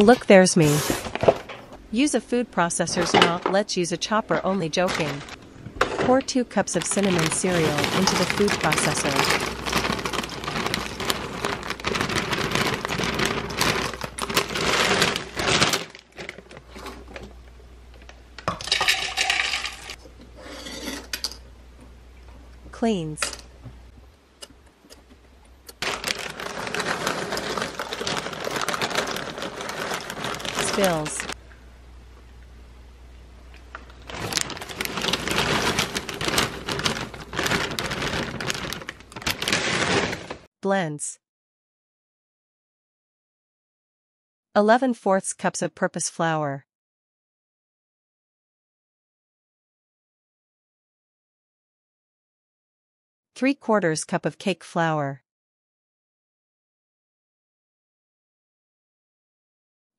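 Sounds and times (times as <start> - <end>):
plastic bag crinkling: 4.6 - 5.5, 6.6 - 17.0, 18.7 - 20.0, 25.8 - 31.4, 33.7 - 40.5
dry cereal pouring: 6.8 - 15.9, 18.8 - 20.0, 25.8 - 31.4, 34.0 - 40.2
cereal rattling into bowl: 18.6 - 20.0.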